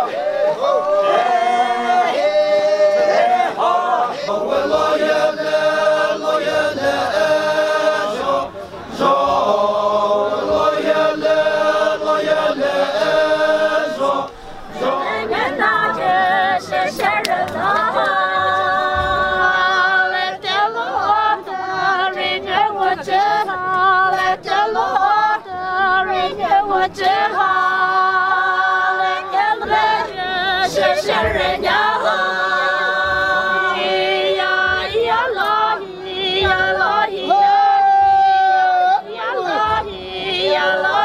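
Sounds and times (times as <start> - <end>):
women singing unaccompanied: 0.0 - 41.0.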